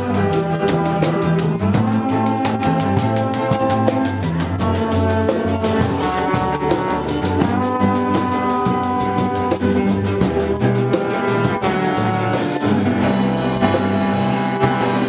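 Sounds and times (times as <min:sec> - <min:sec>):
steady percussion beat: 0:00.0 - 0:15.0
trombone long notes: 0:00.0 - 0:15.0.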